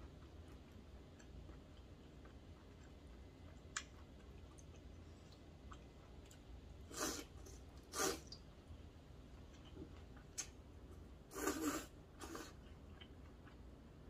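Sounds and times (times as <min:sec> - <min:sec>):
noodle slurping: 0:06.9 - 0:08.3, 0:11.3 - 0:12.6.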